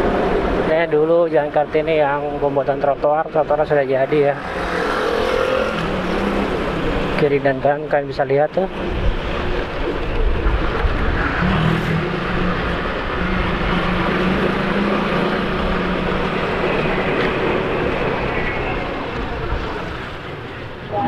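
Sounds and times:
road and wind noise: 0.0 - 21.0
motorcycle engine: 4.3 - 7.3.

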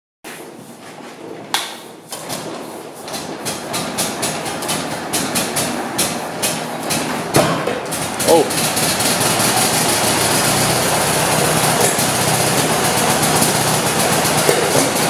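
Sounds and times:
stationary engine starting up: 7.9 - 15.0
sharp crack: 11.6 - 13.6, 14.4 - 15.0.

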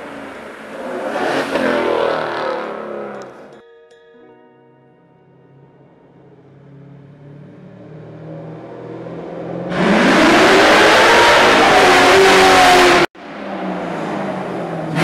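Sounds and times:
car engine accelerating: 0.0 - 3.5, 6.2 - 15.0
quieter engine sound: 5.4 - 9.7.

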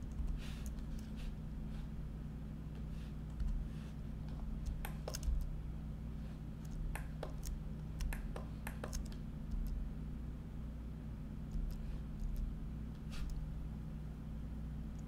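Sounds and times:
steady low hum: 0.0 - 15.0
keyboard and mouse clicks: 4.6 - 5.5, 6.6 - 9.8, 11.5 - 12.5.

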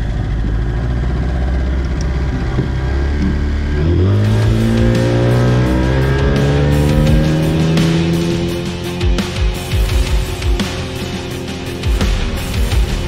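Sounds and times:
outboard motor running: 0.0 - 13.0
rock music: 3.6 - 13.0.

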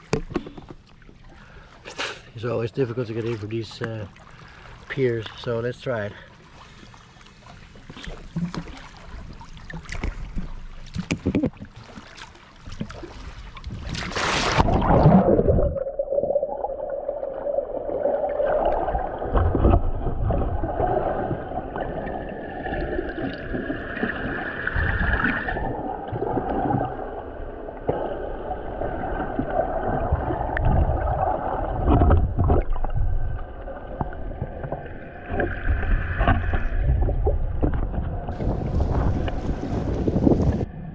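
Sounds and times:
underwater gurgling: 7.2 - 40.9
water splashing and knocking: 9.7 - 15.8, 18.7 - 21.4.

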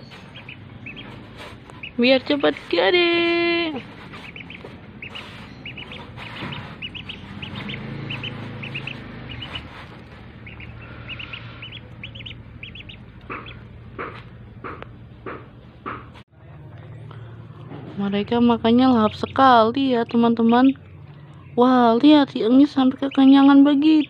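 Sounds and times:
ducklings peeping: 0.0 - 15.4, 18.3 - 24.0
sharp taps: 13.2 - 16.1.

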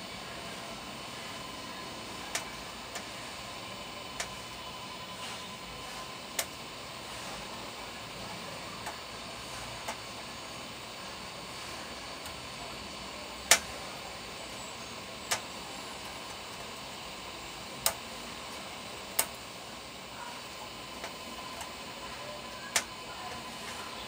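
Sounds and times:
hot-air gun hissing: 0.0 - 24.0
sharp clicks: 4.2 - 4.4, 13.4 - 13.7, 15.3 - 15.5.

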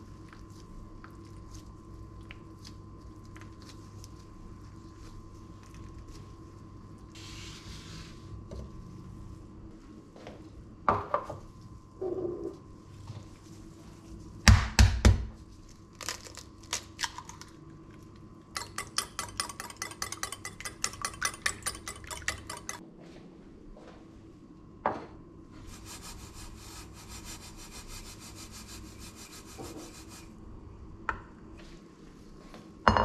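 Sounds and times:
whisk beating eggs in bowl: 18.6 - 22.8, 25.7 - 30.3.

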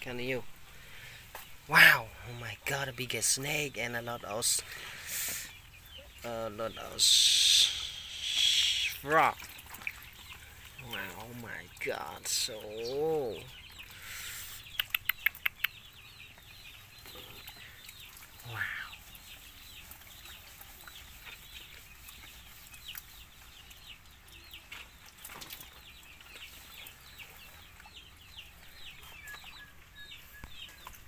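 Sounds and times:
duckling peeping: 4.7 - 24.9.

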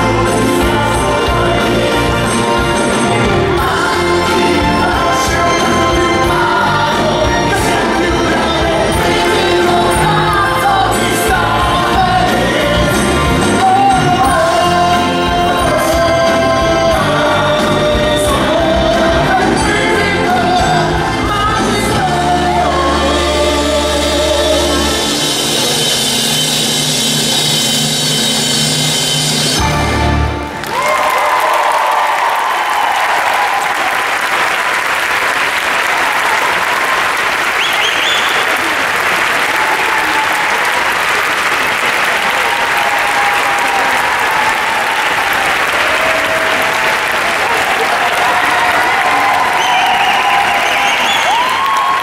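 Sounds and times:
cast singing: 0.0 - 26.8
band accompaniment: 0.0 - 31.4, 35.9 - 52.0
audience applauding: 29.6 - 52.0.

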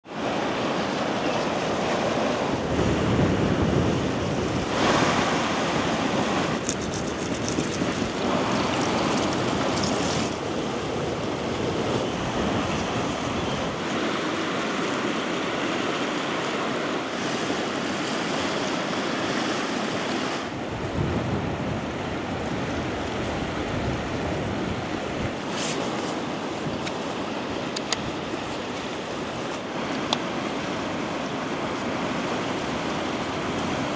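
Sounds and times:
sea waves washing ashore: 0.0 - 33.9
wind on microphone: 0.1 - 33.9.

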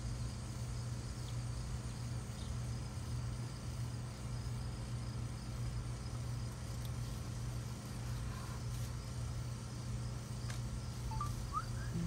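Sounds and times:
low background hum: 0.0 - 12.0
short rising chirps: 11.1 - 12.0.

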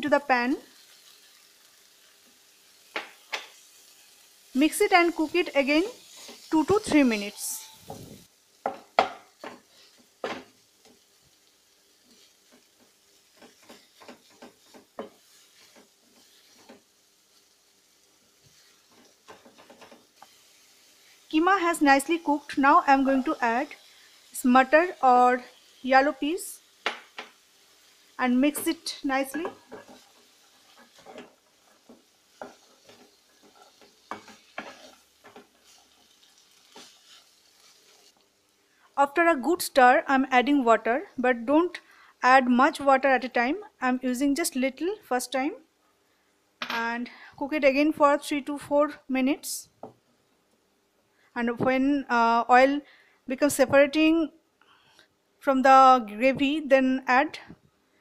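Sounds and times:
light sizzling: 0.0 - 58.0
spatula scraping a wok: 5.9 - 8.3, 12.0 - 17.4, 29.4 - 38.2.

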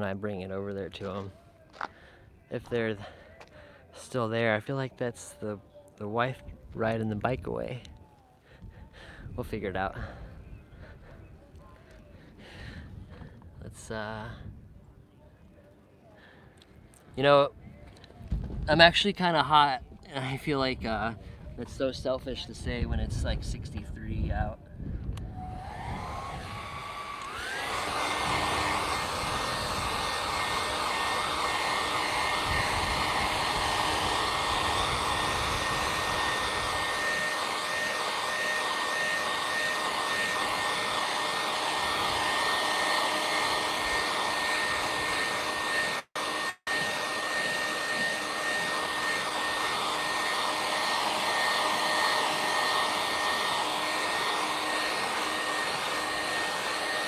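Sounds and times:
hair dryer blowing: 20.2 - 57.0.

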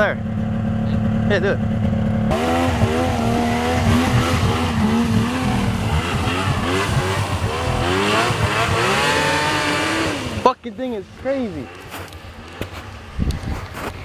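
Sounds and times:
snowmobile engine revving: 0.7 - 13.9.

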